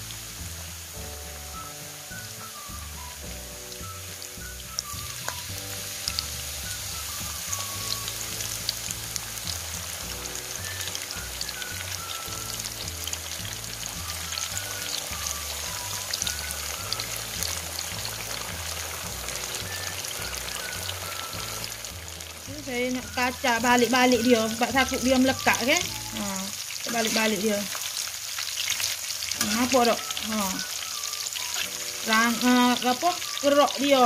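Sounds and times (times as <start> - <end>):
food deep-frying in oil: 0.0 - 34.0
soft background music: 0.0 - 34.0.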